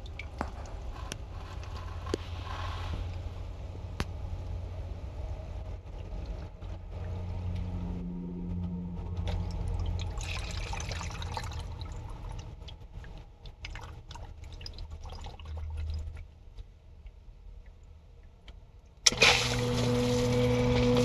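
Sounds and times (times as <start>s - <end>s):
water running and dripping: 0.0s - 1.8s, 9.2s - 16.4s
pump motor humming: 5.9s - 12.6s, 19.0s - 21.0s.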